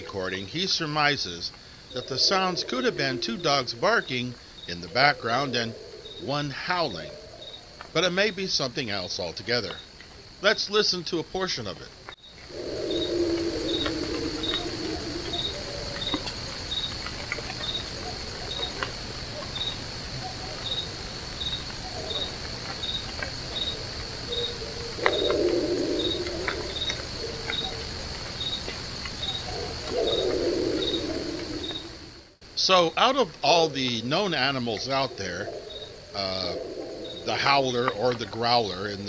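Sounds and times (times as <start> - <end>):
crickets chirping: 0.0 - 39.0
high insect drone: 0.0 - 39.0
low wavering animal howl: 1.9 - 3.8, 12.5 - 16.3, 24.3 - 28.0, 29.4 - 32.1, 34.8 - 38.0.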